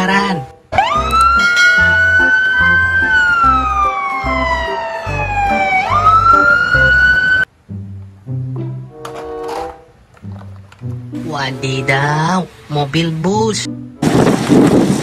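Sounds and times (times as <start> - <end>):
fire engine siren wailing: 0.7 - 7.5.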